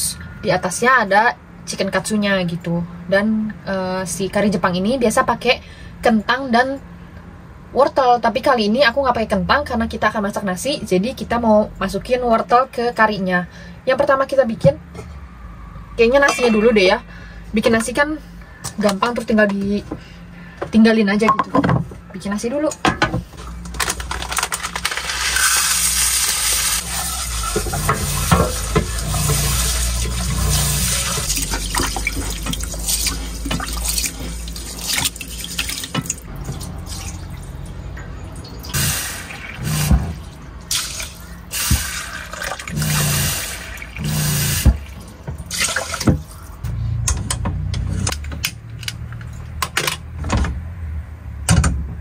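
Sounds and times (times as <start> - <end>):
tap water running into pot: 25.2 - 37.2.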